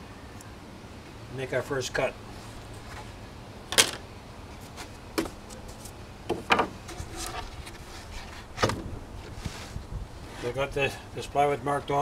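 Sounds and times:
wood rubbing: 0:04.6 - 0:10.6
wooden knocks and clatters: 0:06.3 - 0:07.5.

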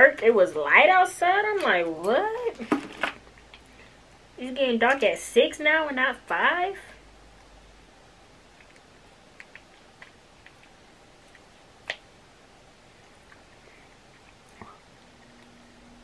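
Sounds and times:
crab shell cracking and peeling: 0:08.5 - 0:12.0.

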